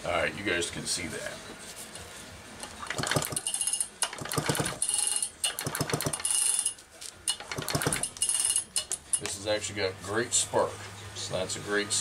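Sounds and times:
recoil starter pulls: 0:02.6 - 0:06.7, 0:07.3 - 0:09.4.

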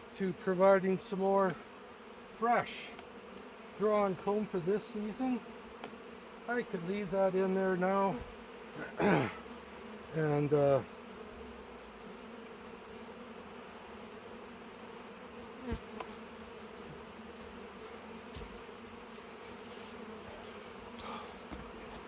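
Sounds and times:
bees buzzing: 0:00.0 - 0:22.0.

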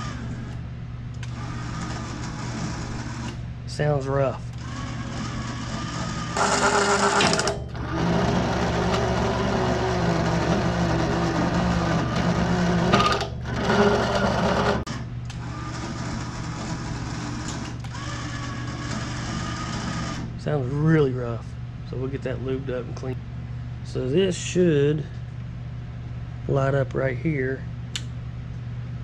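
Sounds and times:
adjustment motor running roughly: 0:01.2 - 0:03.4, 0:04.5 - 0:20.3.

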